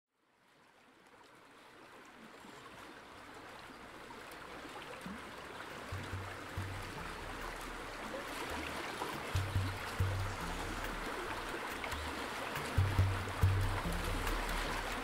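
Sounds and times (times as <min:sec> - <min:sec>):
flowing stream water: 0:00.1 - 0:15.0
deep bass music: 0:06.0 - 0:08.3, 0:09.2 - 0:15.0.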